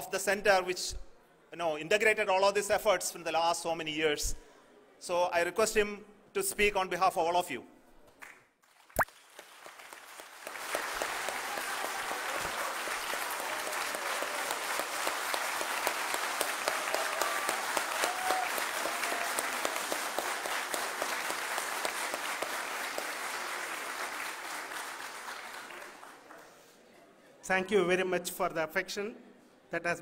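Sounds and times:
crowd applauding: 8.6 - 26.7.

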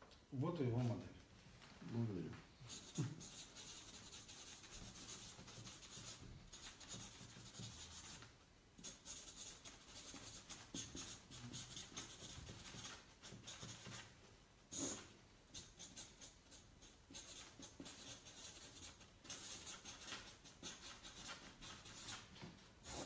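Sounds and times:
marker writing on paper: 2.7 - 23.0.

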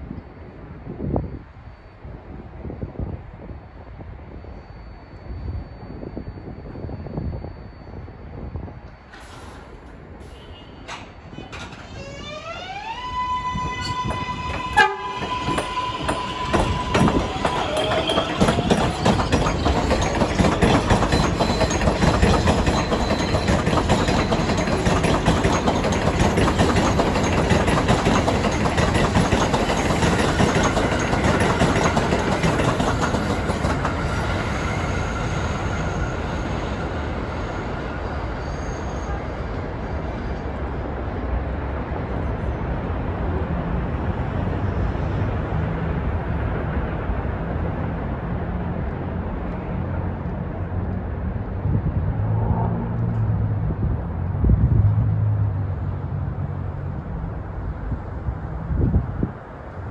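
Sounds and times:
low rumble of street traffic: 6.6 - 59.9
train wheels clattering on rails: 8.9 - 38.4.

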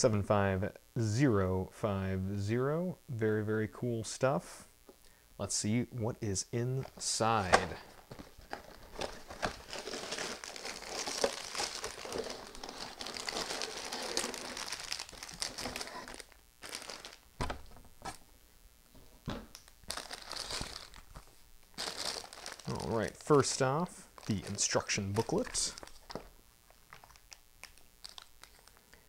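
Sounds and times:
plastic bags crinkling: 6.8 - 18.2, 19.5 - 29.0.

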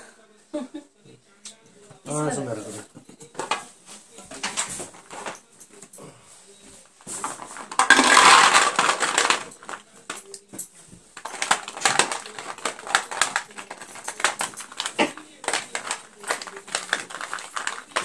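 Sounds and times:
nuts rattling in a container: 7.3 - 9.8, 11.2 - 18.0.

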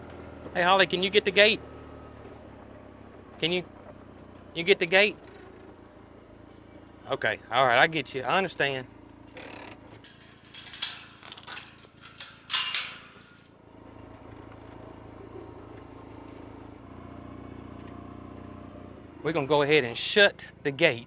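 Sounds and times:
vehicle engine idling: 0.0 - 21.0
gate chain and latch rattling: 10.0 - 13.5.

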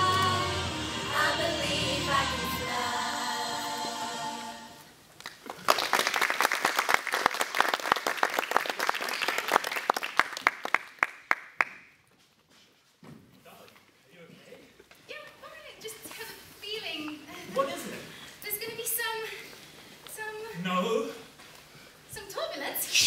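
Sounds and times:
audience applause: 5.2 - 11.8.

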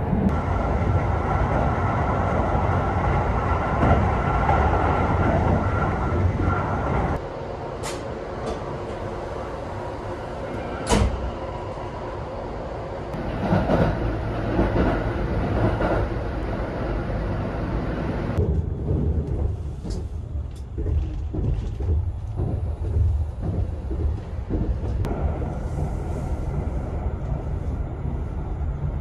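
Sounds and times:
train clatter: 0.0 - 7.2, 13.2 - 17.0, 18.1 - 28.2
train rumbling: 0.0 - 29.0.

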